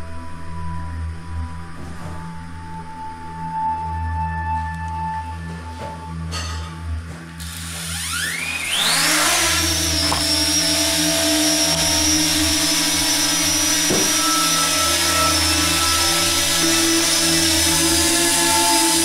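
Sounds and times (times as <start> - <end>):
drone motors whining: 7.0 - 19.0
propeller hum: 8.7 - 19.0.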